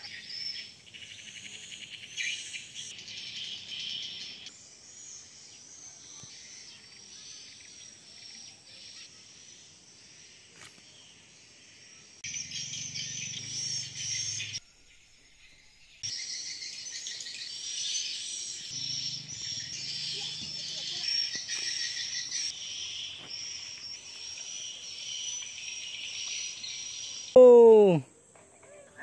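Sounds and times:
insects chirring: 0.0 - 29.0.

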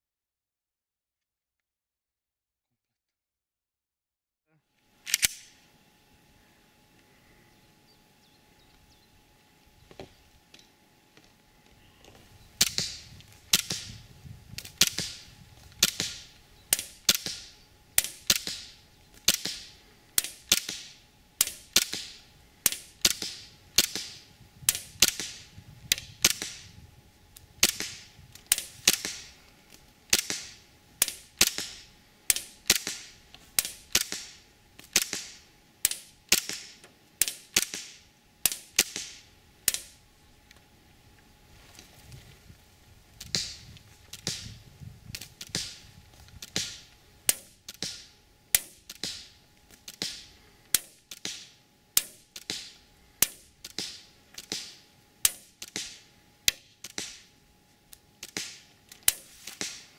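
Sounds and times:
airsoft pistol shots: 12.6 - 14.0, 14.6 - 26.8, 27.6 - 29.3, 30.1 - 40.0, 43.2 - 44.6, 45.4 - 45.8, 46.4 - 49.3, 49.9 - 57.3, 58.2 - 59.9.

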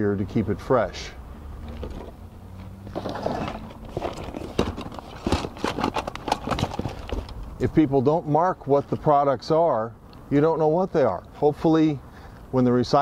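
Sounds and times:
packaging rustling: 2.9 - 7.4.

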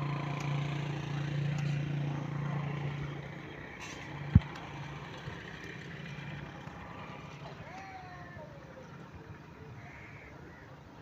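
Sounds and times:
engine humming: 0.0 - 11.0.

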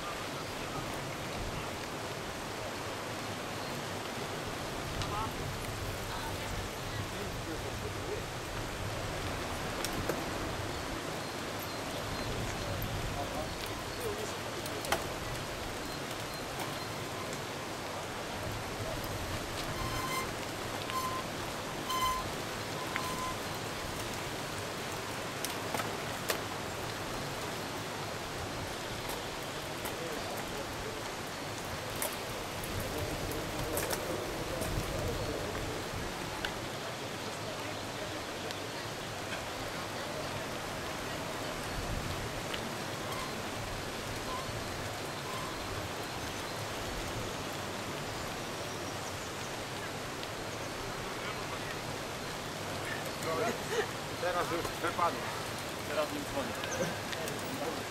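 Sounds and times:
bikes tyres and chains rushing: 3.6 - 36.2
faint voices: 4.3 - 24.1, 28.5 - 46.1, 50.8 - 57.9.

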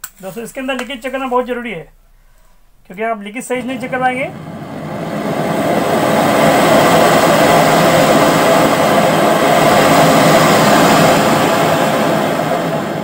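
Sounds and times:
gas burner roaring: 3.4 - 13.0.

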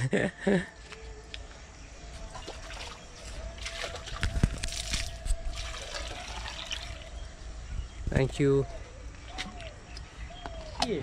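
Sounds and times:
water pouring into plastic jug: 3.6 - 7.1.

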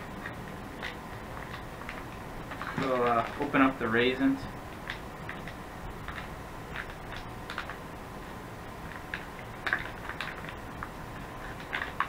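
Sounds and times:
plastic packaging crinkling: 0.8 - 3.9, 8.8 - 12.0.

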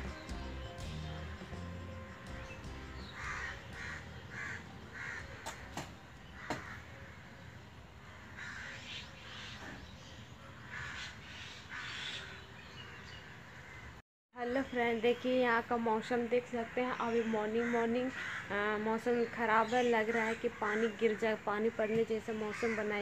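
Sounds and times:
crows cawing: 3.1 - 7.4, 8.0 - 9.5, 10.6 - 12.3, 13.2 - 14.0, 16.6 - 18.6, 22.4 - 23.0.

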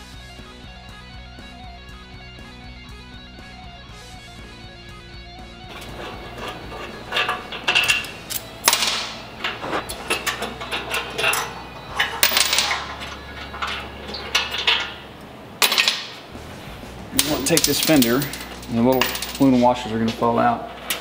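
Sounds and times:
metal hand tool clinking on bolts: 5.7 - 16.2, 17.2 - 20.3.

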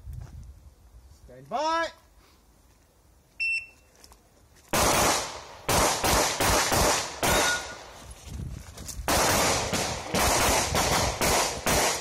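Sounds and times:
handgun shots: 4.8 - 7.8.

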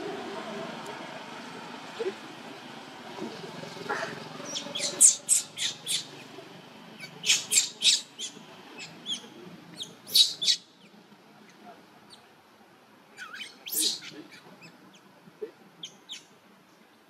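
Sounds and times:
baby monkey crying squeals: 4.5 - 6.1, 7.2 - 8.4, 13.2 - 14.2.

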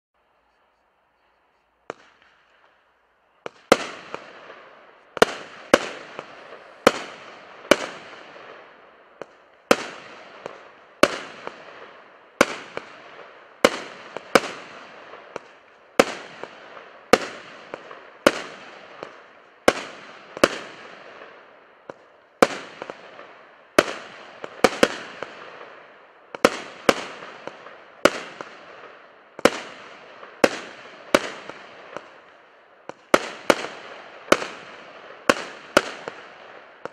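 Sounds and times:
firework bangs: 1.8 - 36.9
firework crackle: 1.8 - 36.9.

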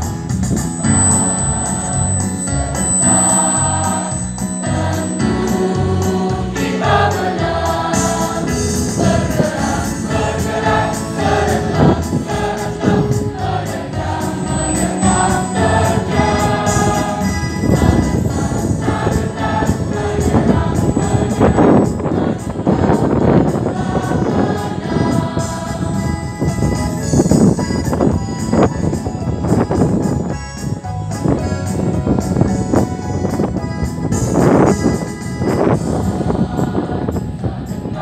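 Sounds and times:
choir singing in parts: 0.7 - 27.2, 35.5 - 38.0
electronic keyboard with beat: 25.4 - 35.6.

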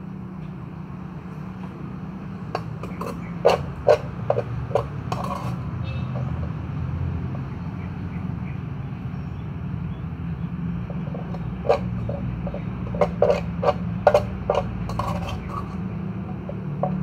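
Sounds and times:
metal spoon knocking on plastic tubs: 2.5 - 6.6, 10.8 - 17.0.

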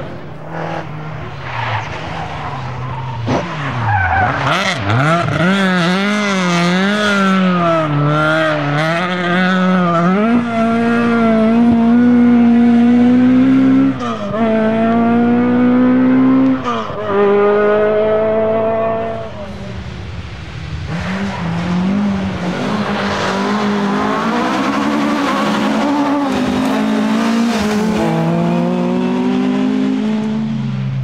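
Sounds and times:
rally car engine revving: 0.0 - 31.0.

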